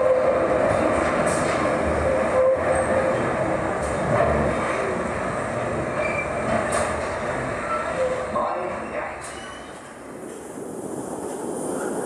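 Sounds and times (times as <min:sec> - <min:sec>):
train wheels rumbling on rail: 0:00.0 - 0:12.0
high wheel squeal: 0:06.0 - 0:06.5.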